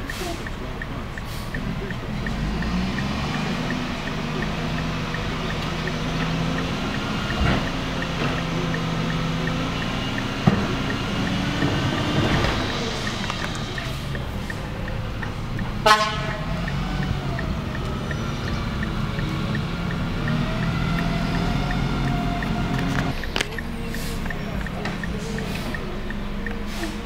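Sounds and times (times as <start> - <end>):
garbage truck engine revving: 0.0 - 27.0
hydraulics whining: 0.0 - 27.0
cart banging against hopper: 10.2 - 13.7.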